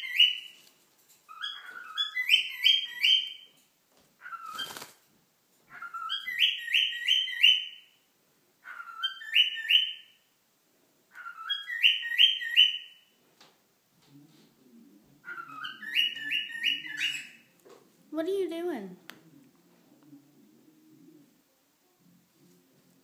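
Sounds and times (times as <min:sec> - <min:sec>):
cockatiel whistling a tune: 0:01.4 - 0:03.4, 0:05.8 - 0:07.9, 0:08.7 - 0:10.2, 0:11.2 - 0:13.0, 0:15.3 - 0:17.4.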